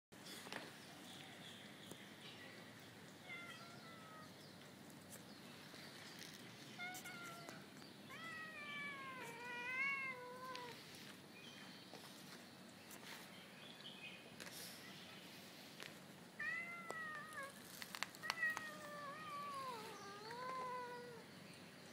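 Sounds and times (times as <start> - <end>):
cat meowing: 3.2 - 4.3, 6.8 - 10.8, 16.4 - 17.6, 18.2 - 21.2.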